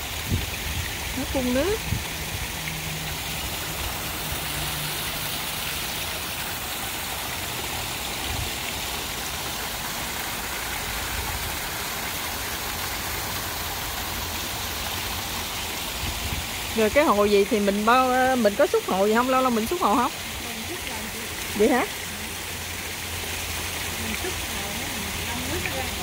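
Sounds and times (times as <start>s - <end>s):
fountain water splashing: 0.0s - 26.0s.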